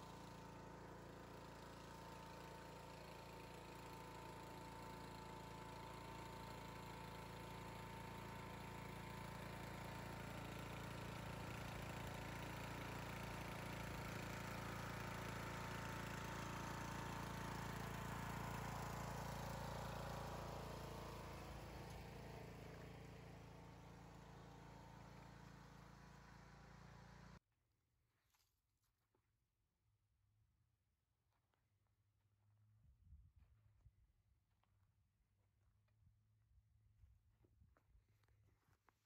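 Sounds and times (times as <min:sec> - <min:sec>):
riding mower engine running: 0:00.0 - 0:27.4.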